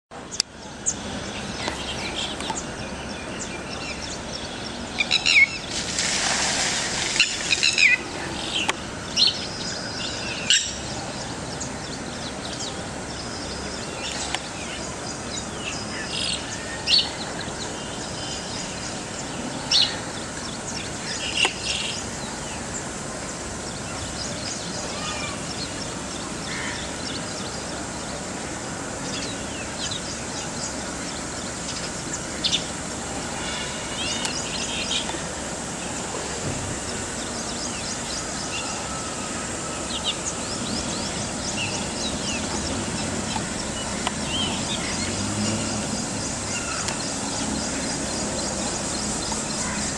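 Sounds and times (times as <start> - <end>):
steady outdoor hiss: 0.1 - 49.9
lapwing calls: 31.8 - 35.4.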